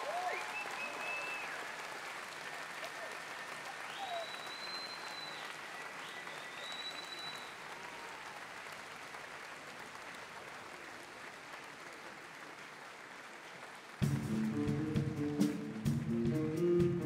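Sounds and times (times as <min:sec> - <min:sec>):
audience applause: 0:00.0 - 0:17.0
long high whistle: 0:03.9 - 0:05.5, 0:06.3 - 0:07.6.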